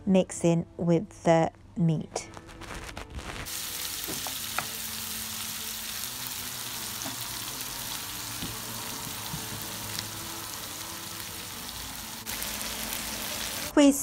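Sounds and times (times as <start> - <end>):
vegetables sizzling in oil: 2.9 - 13.7.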